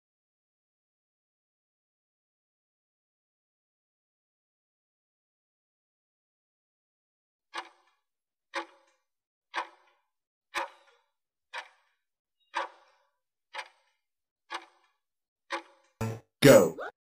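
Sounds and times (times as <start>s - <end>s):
clock ticking: 7.6s - 7.9s, 8.5s - 8.9s, 9.5s - 10.0s, 10.6s - 14.9s, 15.5s - 16.9s.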